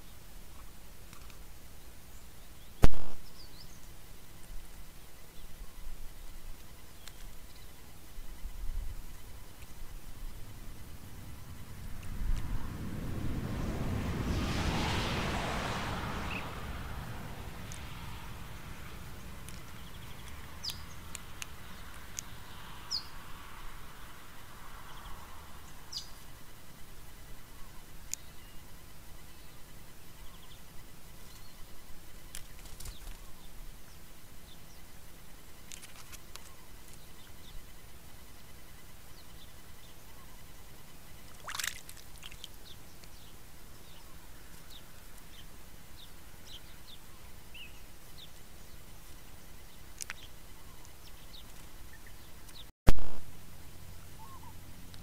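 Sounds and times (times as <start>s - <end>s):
small birds chirping: 0.0s - 52.7s, 53.6s - 55.0s
low background rumble: 8.5s - 22.6s
birds chirping sharply: 9.1s - 23.3s
bird splashing into water: 41.3s - 42.6s.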